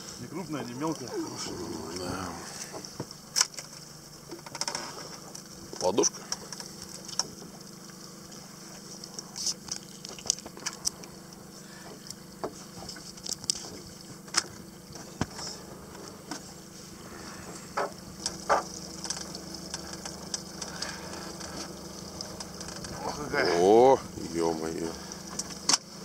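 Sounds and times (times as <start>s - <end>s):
steady low hum: 0.0s - 26.0s
water dripping and splashing: 0.3s - 26.0s
clicks and knocks against hull: 2.6s - 8.0s, 8.7s - 16.6s, 17.4s - 23.3s, 25.0s - 26.0s.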